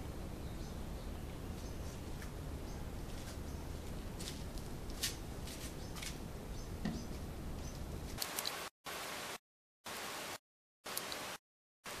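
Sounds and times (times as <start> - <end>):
low background hum: 0.0 - 8.2.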